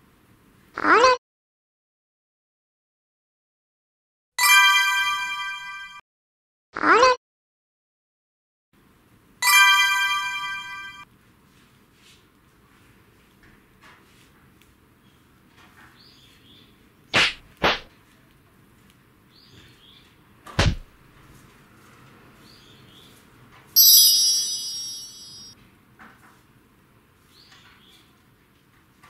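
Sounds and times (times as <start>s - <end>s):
bright ringing tone: 4.4s - 6.0s, 9.4s - 11.0s, 23.8s - 25.5s.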